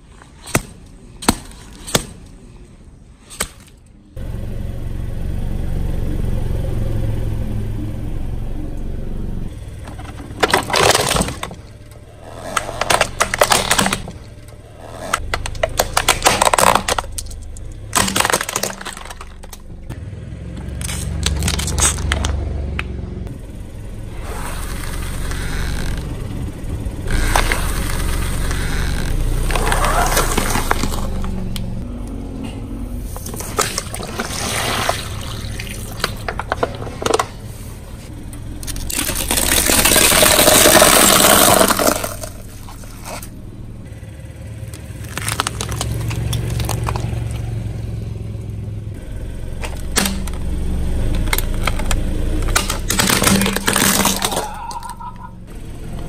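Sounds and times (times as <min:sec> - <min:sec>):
car rumbling: 0:03.8 - 0:56.0
objects cracking under car tyre: 0:09.8 - 0:23.0, 0:24.2 - 0:31.9, 0:33.1 - 0:47.8, 0:49.4 - 0:55.3.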